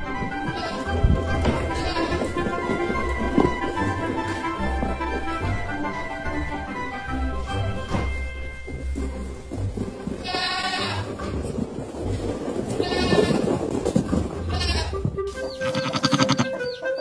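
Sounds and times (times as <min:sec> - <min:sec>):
goat kids bleating: 0:00.4 - 0:02.5, 0:10.2 - 0:11.1, 0:12.7 - 0:13.5, 0:14.5 - 0:15.0, 0:15.6 - 0:16.6.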